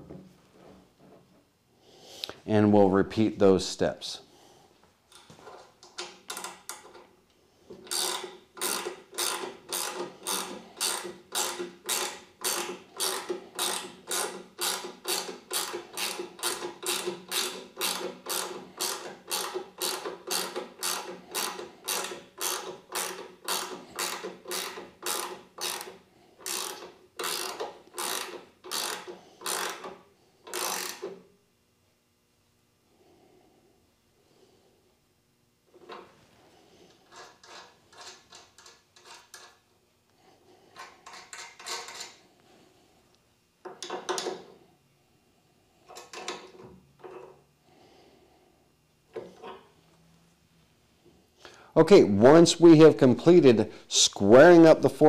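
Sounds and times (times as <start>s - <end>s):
ratcheting wrench clicking: 5.1s - 7.0s, 7.8s - 31.2s, 37.0s - 39.6s, 40.8s - 42.2s.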